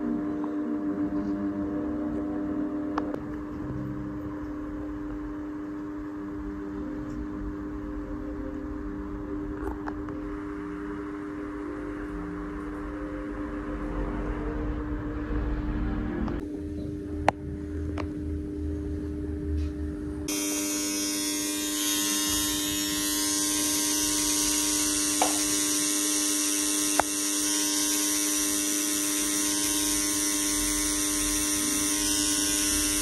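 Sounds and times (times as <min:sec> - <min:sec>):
low hum: 0:00.0 - 0:33.0
electric tattoo pen buzzing: 0:20.2 - 0:33.0.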